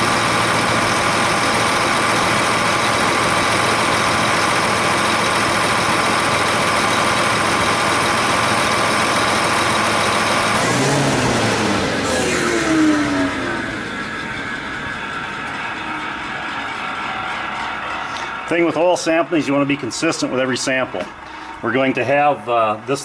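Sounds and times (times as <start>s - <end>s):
diesel engine idling: 0.0s - 23.0s
falling tone: 10.6s - 19.5s.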